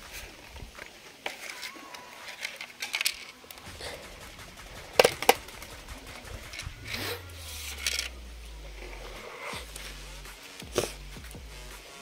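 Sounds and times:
plastic scraping on plastic: 0:00.0 - 0:03.7.

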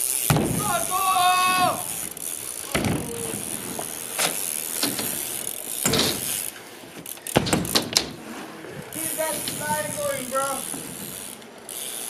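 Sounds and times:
bike tyres rolling on concrete: 0:00.0 - 0:12.0
bike landing with loud knocks: 0:00.2 - 0:08.3.

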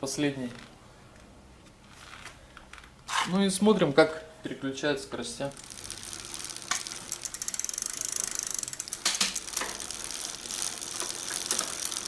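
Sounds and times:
bike chain ticking: 0:05.4 - 0:12.0.

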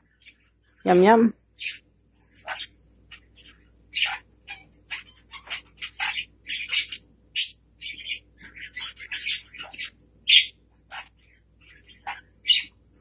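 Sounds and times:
macaw chirps and squawks: 0:03.9 - 0:12.8.

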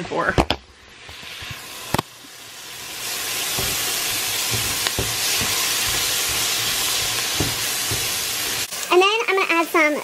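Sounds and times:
vegetables sizzling in a pot: 0:00.0 - 0:10.0
spoon stirring against pot: 0:03.4 - 0:08.7.

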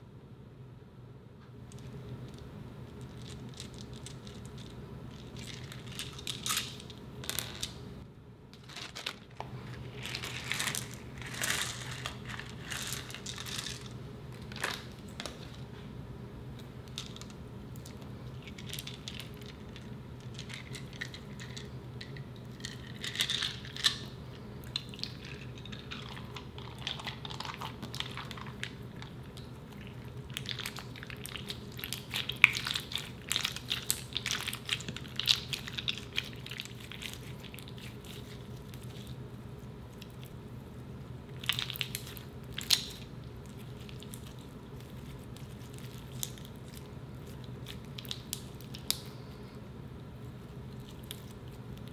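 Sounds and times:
slime crackling stickily: 0:24.7 - 0:39.2, 0:41.3 - 0:49.0.

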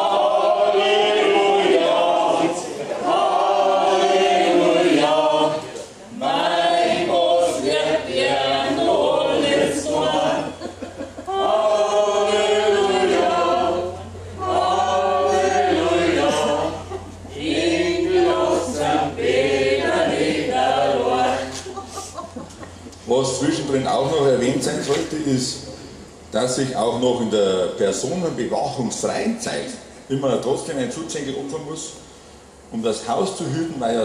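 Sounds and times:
mixed choir singing unaccompanied: 0:00.0 - 0:22.4.

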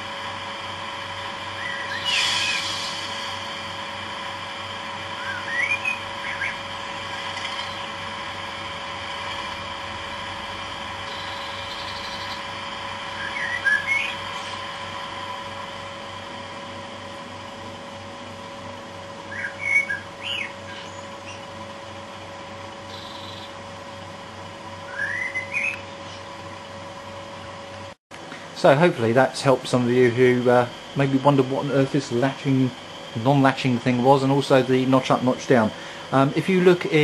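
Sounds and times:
chirping bursts: 0:01.4 - 0:03.4, 0:05.1 - 0:08.1, 0:11.0 - 0:15.7, 0:19.2 - 0:21.6, 0:22.8 - 0:23.7, 0:24.8 - 0:26.4
steady high whistle: 0:01.4 - 0:06.8, 0:11.0 - 0:16.0, 0:24.9 - 0:25.9.

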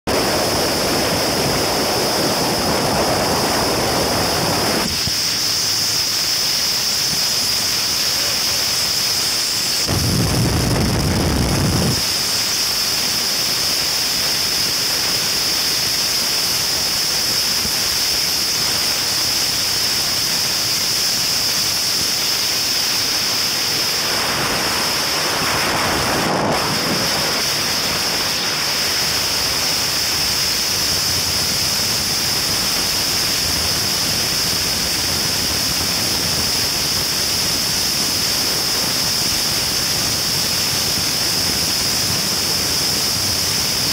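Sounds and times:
wind buffeting microphone: 0:00.1 - 0:06.0, 0:08.5 - 0:12.1, 0:24.0 - 0:43.9
wind and water rushing: 0:00.1 - 0:43.9.

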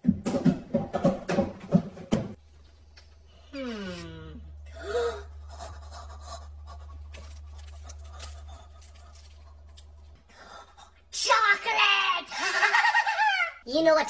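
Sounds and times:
low hum: 0:02.4 - 0:11.1.

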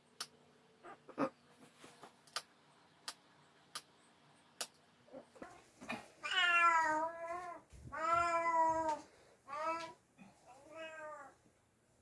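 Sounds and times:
cat meowing: 0:06.2 - 0:10.0.

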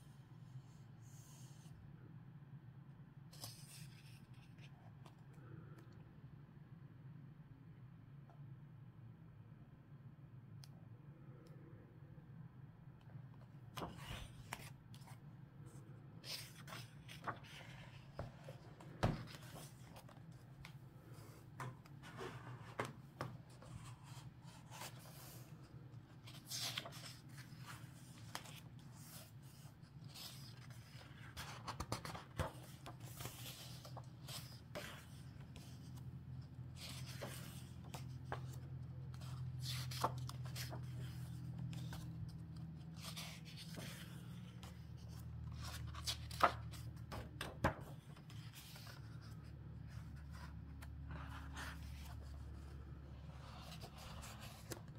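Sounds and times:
book pages turning: 0:03.3 - 0:05.3, 0:13.4 - 0:54.9.

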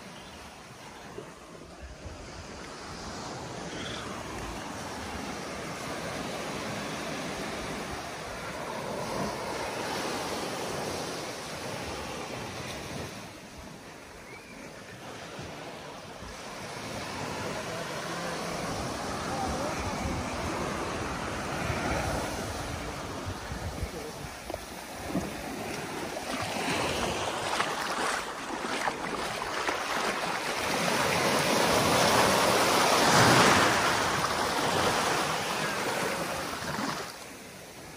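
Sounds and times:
small waves breaking on beach: 0:00.0 - 0:37.9
wind buffeting microphone: 0:18.8 - 0:28.1.

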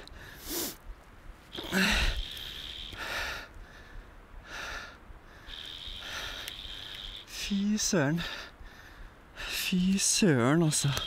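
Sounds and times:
man breathing hard and fast: 0:00.0 - 0:00.9, 0:01.5 - 0:09.8.

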